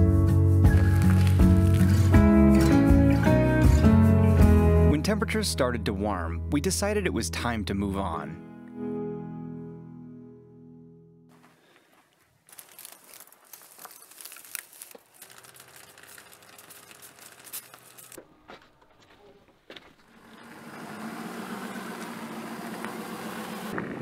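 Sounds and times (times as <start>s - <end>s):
crackling crunching clicks: 0.7s - 2.7s, 12.1s - 20.0s
pickup truck engine driving off: 20.0s - 24.0s.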